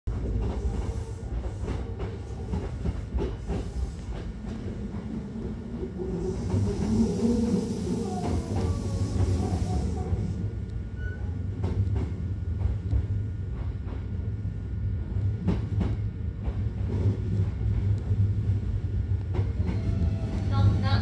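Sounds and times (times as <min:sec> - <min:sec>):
train running low rumble: 0:00.1 - 0:21.0.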